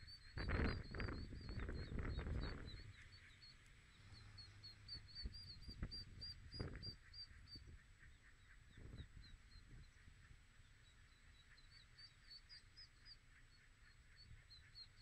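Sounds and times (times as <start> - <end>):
ducklings peeping: 0.0 - 15.0.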